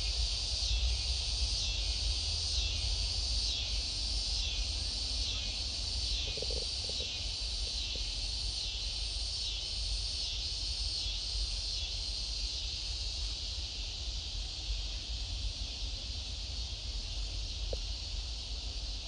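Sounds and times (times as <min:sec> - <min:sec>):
insects chirring: 0:00.0 - 0:19.0.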